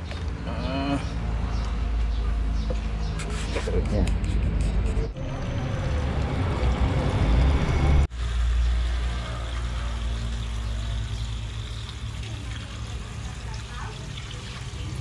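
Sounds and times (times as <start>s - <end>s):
rushing noise: 4.4s - 9.4s.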